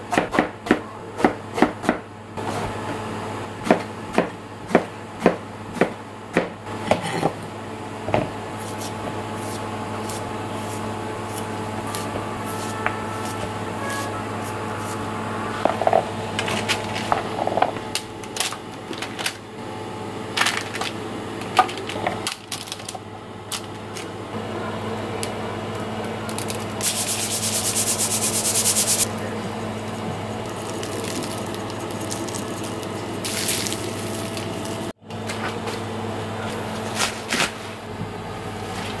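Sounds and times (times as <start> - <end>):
knife chopping on cutting board: 3.6 - 7.1
low hum: 11.6 - 18.4.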